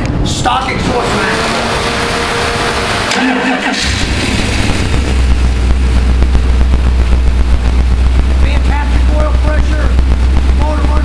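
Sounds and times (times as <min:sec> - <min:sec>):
engine starting and idling: 0:00.8 - 0:06.1.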